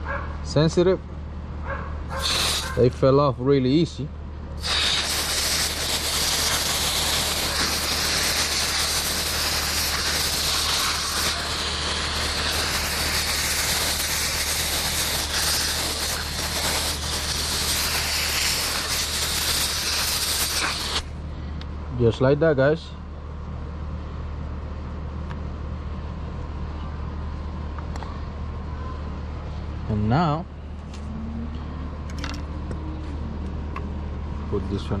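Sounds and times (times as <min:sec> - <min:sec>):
hose nozzle spraying water: 0:02.1 - 0:02.8, 0:04.6 - 0:21.1.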